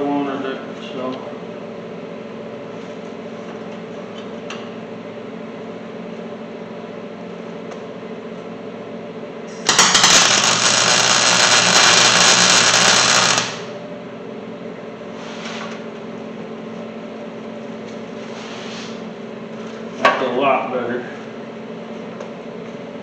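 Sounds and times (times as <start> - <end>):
steady low hum: 0.0 - 23.0
welding arc crackling: 9.5 - 13.8.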